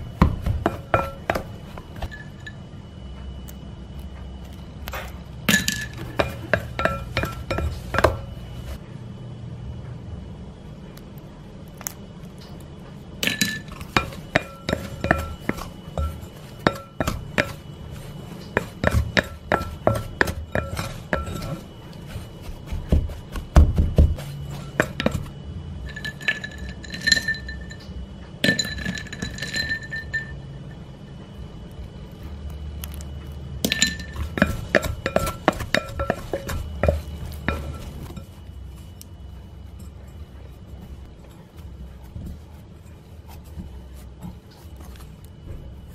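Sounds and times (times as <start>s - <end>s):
glass bowl ringing: 0.6s - 2.7s, 5.5s - 8.6s, 13.2s - 22.2s, 24.2s - 30.8s, 33.6s - 38.4s
spatula scraping glass bowl: 5.8s - 8.8s, 13.5s - 23.5s, 24.2s - 27.8s, 33.6s - 38.5s.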